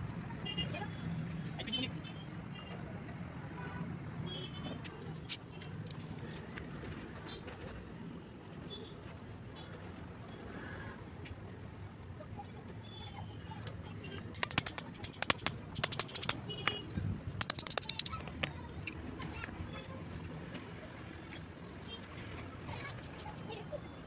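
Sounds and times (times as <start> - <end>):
metal hand tools clinking: 5.2 - 6.7, 14.2 - 16.8, 17.4 - 20.4, 21.1 - 21.5.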